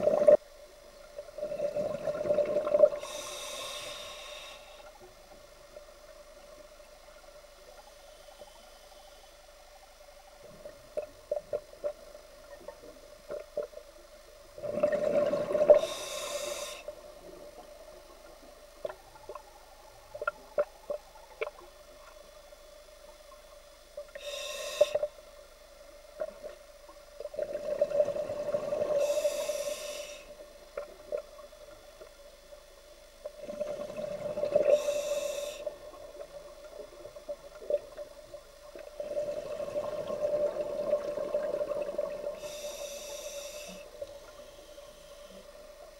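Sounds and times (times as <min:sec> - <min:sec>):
faint steady hum: 0:00.0 - 0:45.9
diver breathing through regulator: 0:02.9 - 0:05.0, 0:15.4 - 0:17.0, 0:24.2 - 0:25.1, 0:28.8 - 0:30.4, 0:34.5 - 0:35.9, 0:42.2 - 0:45.5.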